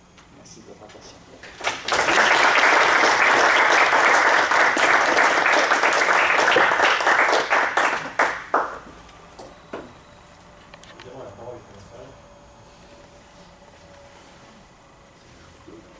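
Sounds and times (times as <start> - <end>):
audience applauding: 1.4 - 8.8.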